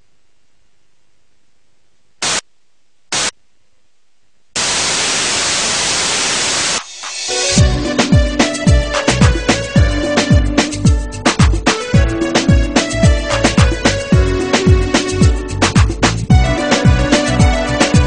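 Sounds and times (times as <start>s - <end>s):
static hiss: 0.0s - 3.6s, 4.4s - 7.6s.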